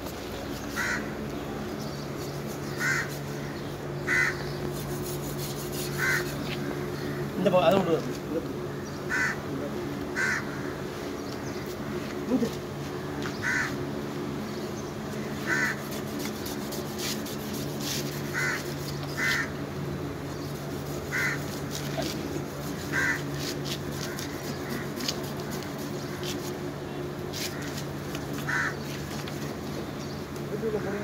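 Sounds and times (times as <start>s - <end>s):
steady low hum: 0.0s - 31.0s
crows cawing: 0.7s - 1.2s, 2.7s - 4.6s, 5.9s - 7.4s, 8.7s - 12.0s, 13.0s - 13.9s, 15.2s - 16.0s, 18.2s - 19.6s, 21.0s - 22.0s, 22.8s - 26.5s, 27.3s - 29.5s.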